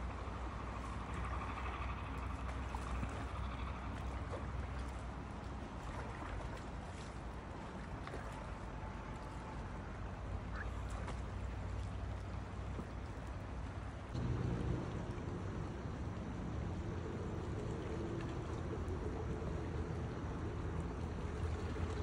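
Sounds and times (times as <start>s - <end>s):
low rumble: 13.9s - 22.0s.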